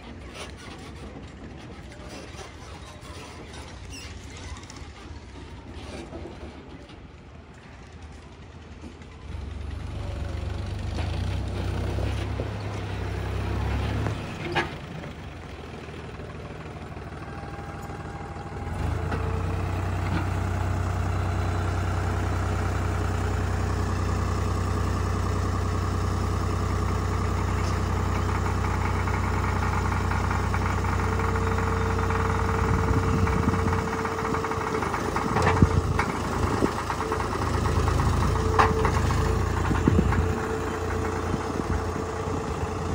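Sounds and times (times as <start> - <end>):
tractor diesel engine running: 0.0 - 42.9.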